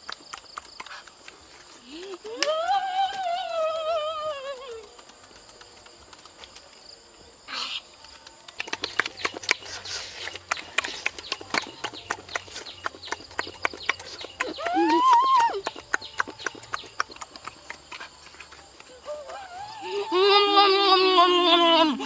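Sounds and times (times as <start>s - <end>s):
chewing and lip-smacking: 8.1s - 14.8s, 15.4s - 19.1s.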